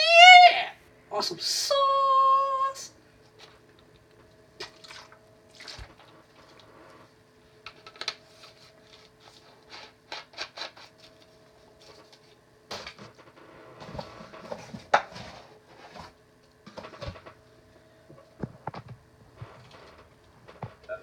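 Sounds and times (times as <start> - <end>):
faint steady hum: 0.0 - 21.0
small clicks and handling noises: 7.6 - 12.4.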